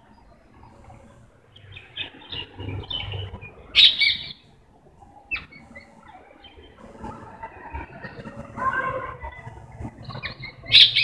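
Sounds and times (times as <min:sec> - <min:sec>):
parrot chirping and squawking: 0:03.8 - 0:04.4, 0:10.0 - 0:11.0.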